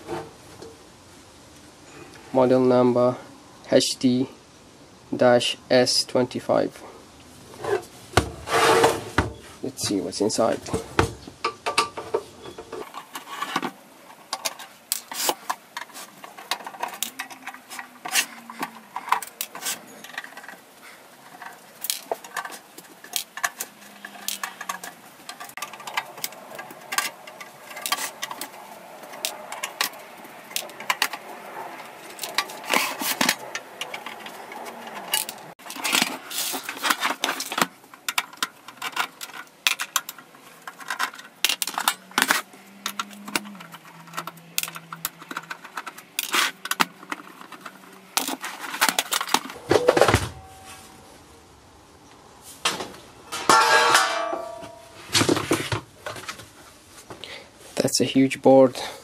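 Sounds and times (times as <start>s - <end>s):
metallic scrapes and rattles: 7.5s - 51.2s, 52.4s - 55.8s
clinks of screws and metal parts: 11.4s - 31.2s, 32.1s - 49.6s.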